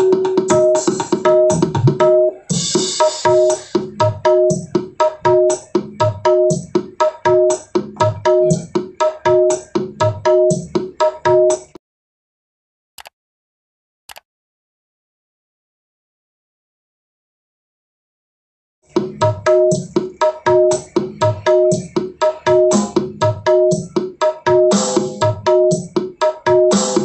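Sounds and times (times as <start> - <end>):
music through speaker: 0.0 - 11.7, 18.9 - 27.0.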